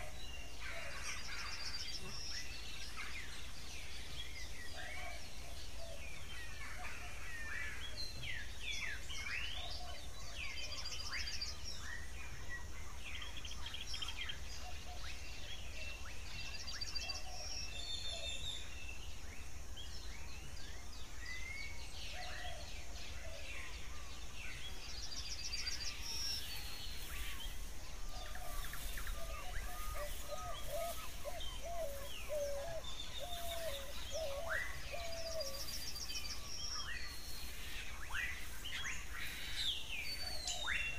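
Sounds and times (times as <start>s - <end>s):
birds chirping and whistling: 0.0s - 40.9s
low repeated warbling bird call: 21.6s - 40.9s.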